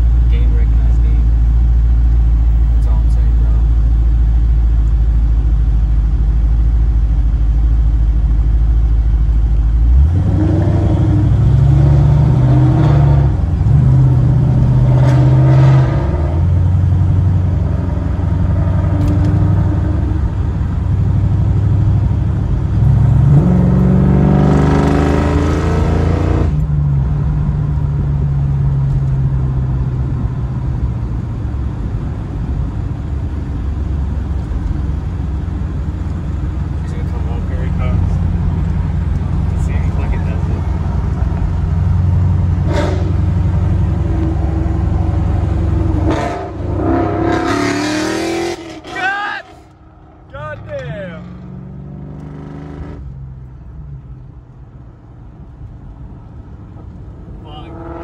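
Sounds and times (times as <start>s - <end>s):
car engine revving: 7.9s - 30.7s, 34.0s - 54.1s, 56.8s - 58.0s.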